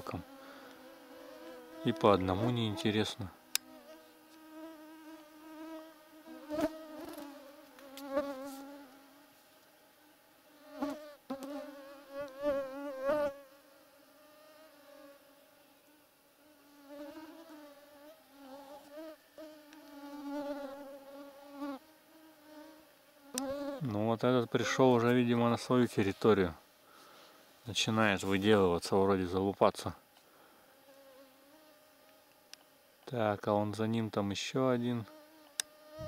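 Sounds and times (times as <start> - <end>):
mosquitoes whining: 0.0 - 8.9.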